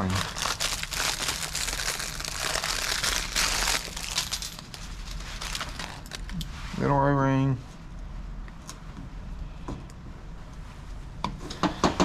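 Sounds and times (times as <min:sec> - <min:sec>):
plastic bag crinkling: 0:00.0 - 0:06.4.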